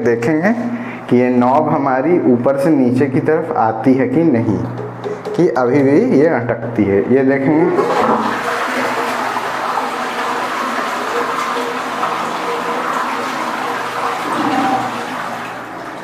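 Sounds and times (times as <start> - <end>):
toilet flushing: 7.5 - 16.0.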